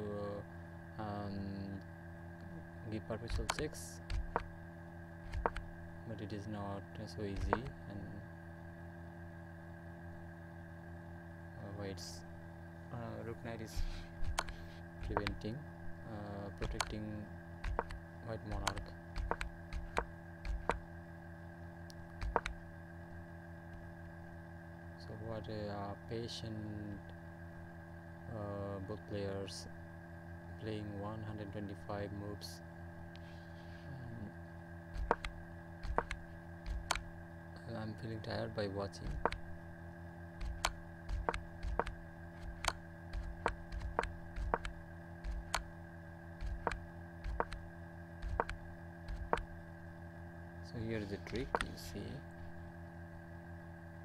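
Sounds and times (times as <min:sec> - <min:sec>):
low electrical hum: 0:00.0 - 0:54.0
computer mouse clicks: 0:03.3 - 0:04.5, 0:05.3 - 0:05.7, 0:07.4 - 0:07.7, 0:14.2 - 0:15.4, 0:16.6 - 0:17.0, 0:17.6 - 0:20.8, 0:22.2 - 0:22.6, 0:35.0 - 0:37.1, 0:39.1 - 0:39.4, 0:40.4 - 0:45.7, 0:46.4 - 0:47.6, 0:48.2 - 0:49.5, 0:51.3 - 0:51.8.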